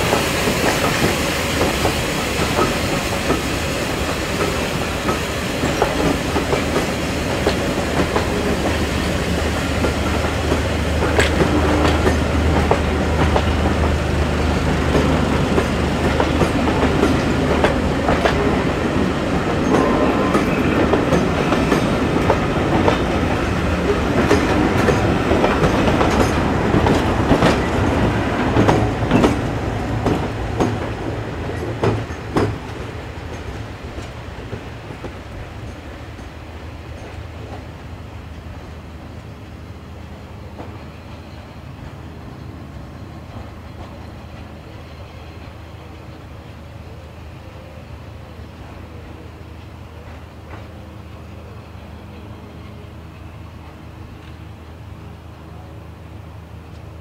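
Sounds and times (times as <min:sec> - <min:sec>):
train wheels clicking over rail joints: 0:00.0 - 0:39.3.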